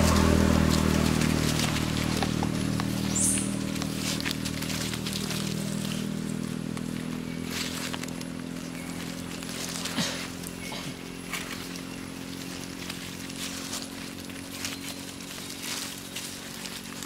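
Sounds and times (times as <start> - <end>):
rustling clicks in leaf litter: 0.0 - 17.0
vehicle engine running: 0.0 - 17.0
high chirp: 3.0 - 3.7.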